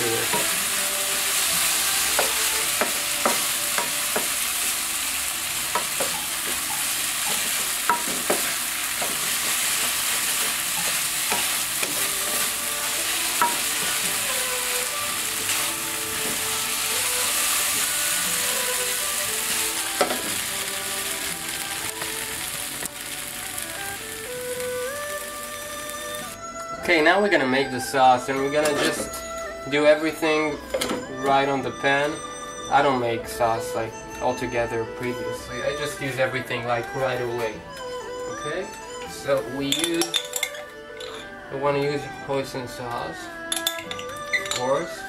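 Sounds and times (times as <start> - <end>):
noodles sizzling in a wok: 0.0 - 26.4
wooden spatula knocking pan: 7.3 - 12.4.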